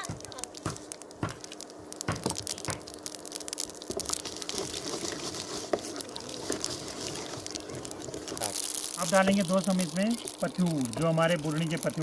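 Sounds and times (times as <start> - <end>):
seeds popping in hot oil: 0.0 - 12.0.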